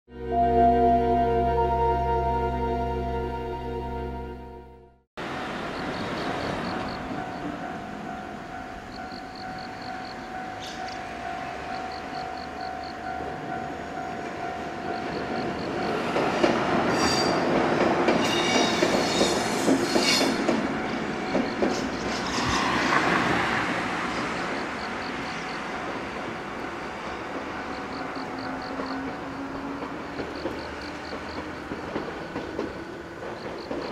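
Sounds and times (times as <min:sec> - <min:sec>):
level crossing bell dinging: 0:00.2 - 0:04.9
train high squeal: 0:09.0 - 0:11.8, 0:16.9 - 0:17.5, 0:18.2 - 0:24.5
train wheels clacking over joints: 0:15.8 - 0:23.4, 0:28.6 - 0:33.9.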